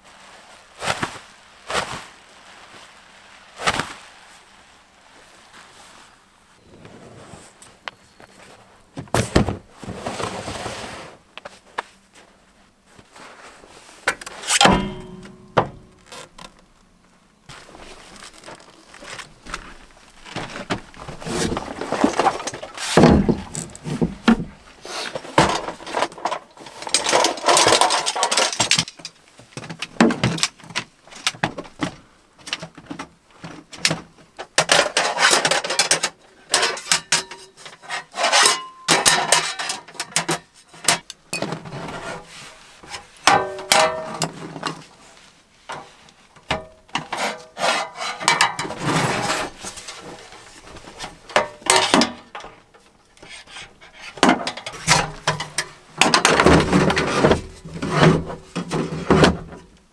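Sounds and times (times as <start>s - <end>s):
gloved hands rustling: 17.4s - 25.8s.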